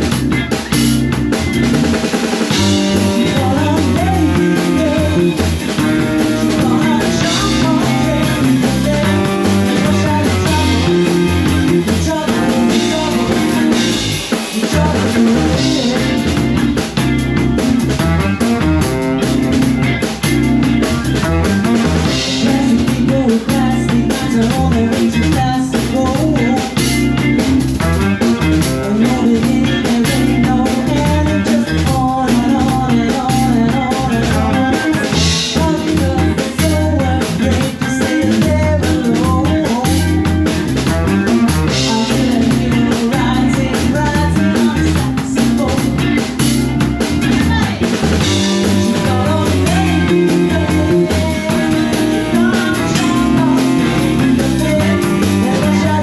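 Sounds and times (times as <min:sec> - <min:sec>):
live band playing: 0:00.0 - 0:56.0
woman singing: 0:02.7 - 0:05.4, 0:06.4 - 0:11.0, 0:11.6 - 0:16.3, 0:22.3 - 0:26.8, 0:28.8 - 0:40.1, 0:41.8 - 0:46.0, 0:47.2 - 0:47.9, 0:48.6 - 0:56.0.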